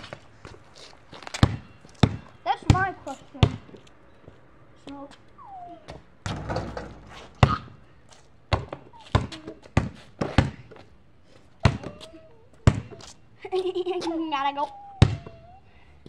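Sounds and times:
basketball bouncing on pavement: 0.0 - 3.9, 5.9 - 11.0, 11.6 - 13.1, 15.0 - 15.5.

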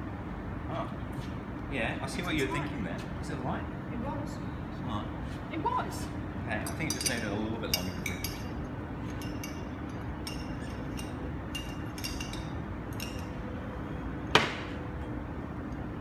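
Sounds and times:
low background hum: 0.0 - 16.0
fork clinking against glass bottle: 9.1 - 13.3.

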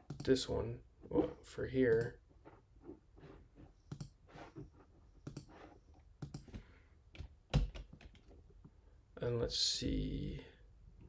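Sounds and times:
computer mouse and keyboard clicks: 5.2 - 6.6.

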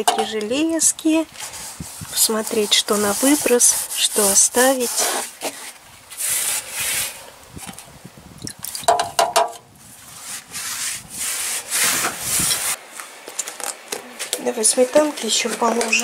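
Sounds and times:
rough rubbing strokes: 1.3 - 7.4, 9.8 - 12.8.

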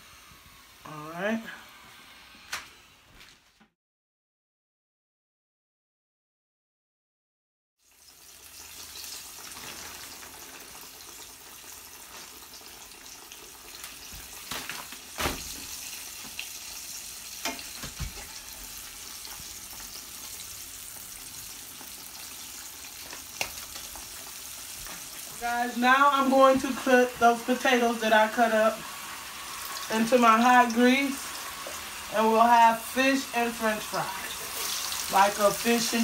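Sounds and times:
fish sizzling in hot oil: 7.8 - 36.0.

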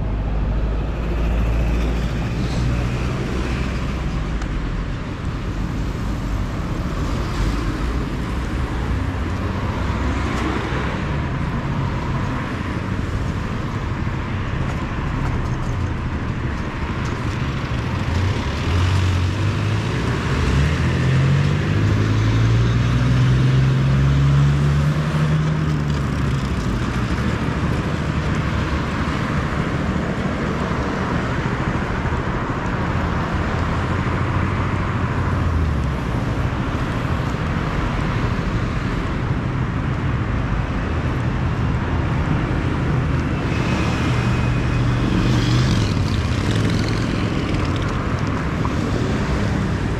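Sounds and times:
road traffic: 0.0 - 49.9.

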